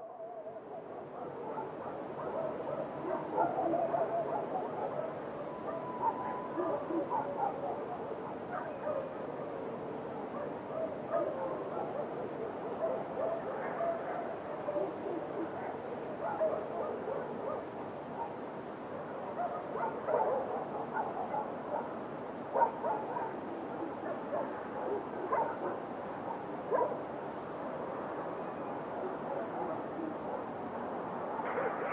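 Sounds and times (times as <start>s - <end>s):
night ambience hiss: 0.0s - 31.9s
dogs barking: 0.8s - 9.6s, 10.3s - 27.0s, 31.1s - 31.9s.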